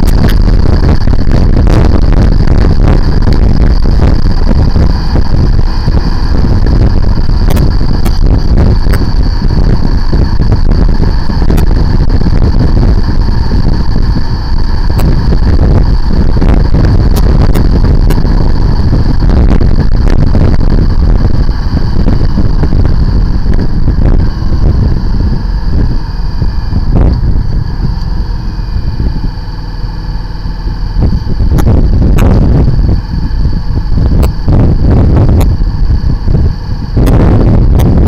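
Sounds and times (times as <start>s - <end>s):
motorcycle engine: 0.0s - 38.0s
wind buffeting microphone: 0.0s - 38.0s
sharp ticks: 2.3s - 20.1s, 31.1s - 37.9s.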